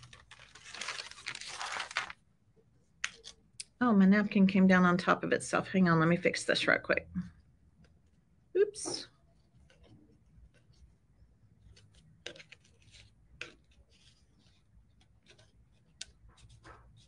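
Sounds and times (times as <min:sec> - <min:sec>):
paper and tissue rustling: 0:00.0 - 0:02.2, 0:08.9 - 0:17.0.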